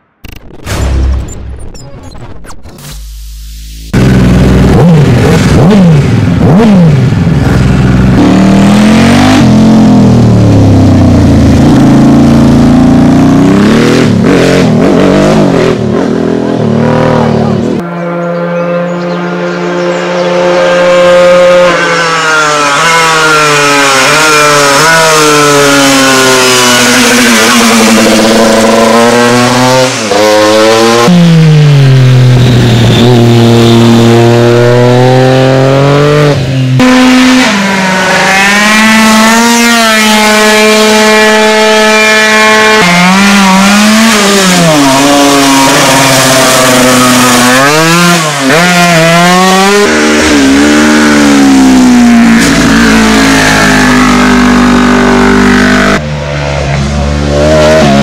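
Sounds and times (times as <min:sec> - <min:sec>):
racing motorcycle engines: 0:03.9 - 0:58.0
scooter engine high note: 0:17.1 - 0:29.0.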